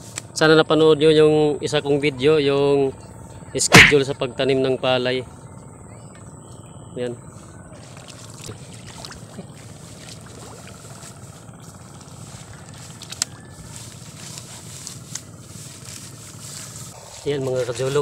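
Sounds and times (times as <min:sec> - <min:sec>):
seedlings pulled from wet mud: 0:07.8 - 0:11.4.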